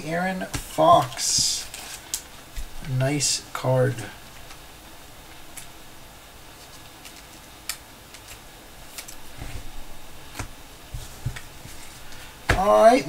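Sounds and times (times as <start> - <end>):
cards and packaging clicking: 6.5 - 9.3.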